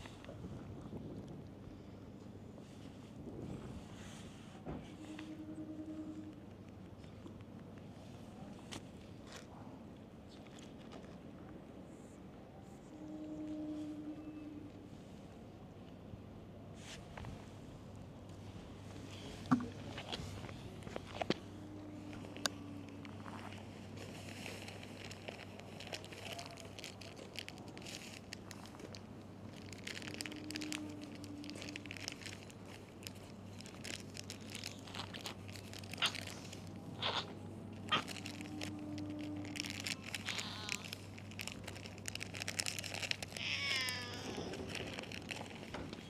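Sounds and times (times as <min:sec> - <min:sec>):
steady low hum: 0:00.0 - 0:43.4
rustles: 0:16.8 - 0:46.0
cat meowing: 0:40.2 - 0:40.9, 0:43.3 - 0:44.7.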